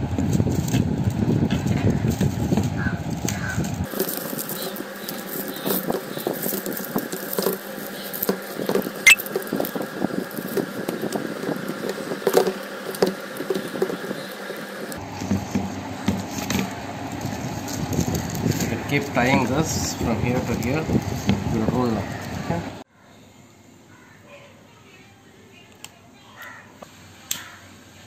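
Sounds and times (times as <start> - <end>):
broom stalks rustling and clicking: 0.5 - 22.3.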